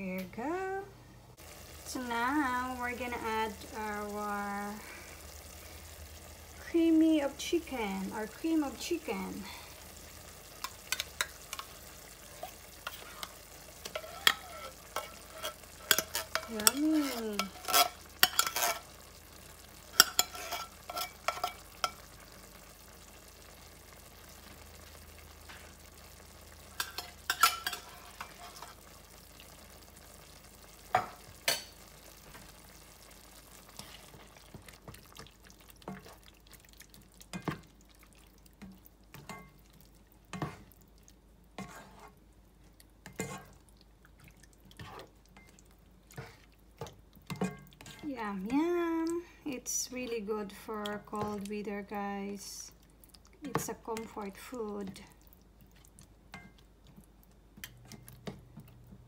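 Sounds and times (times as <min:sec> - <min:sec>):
meat sizzling in a pan: 0:01.4 - 0:58.4
spatula scraping pan: 0:10.6 - 0:19.1, 0:19.9 - 0:22.1, 0:26.8 - 0:28.9, 0:33.6 - 0:35.1, 0:41.6 - 0:42.2, 0:43.0 - 0:43.6, 0:44.7 - 0:45.5, 0:46.1 - 0:48.8.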